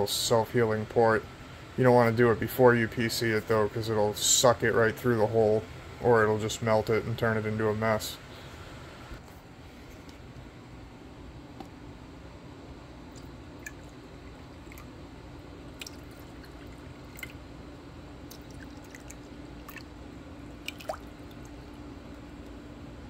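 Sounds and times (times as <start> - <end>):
steady low hum: 0.0 - 23.0
water trickling into jars: 15.7 - 17.4, 18.2 - 19.9, 20.6 - 21.6.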